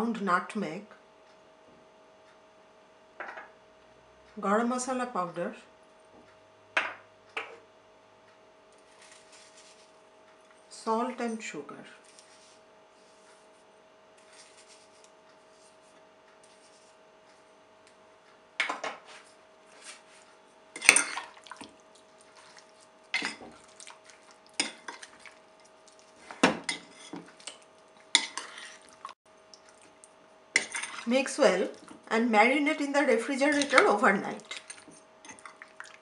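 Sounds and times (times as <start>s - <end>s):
metal spoon scraping a bowl: 26.7s - 28.9s.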